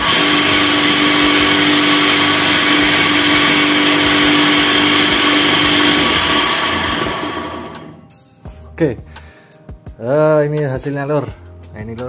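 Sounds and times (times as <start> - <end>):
saw winding down: 0.0 - 8.0
table saw running: 0.0 - 8.0.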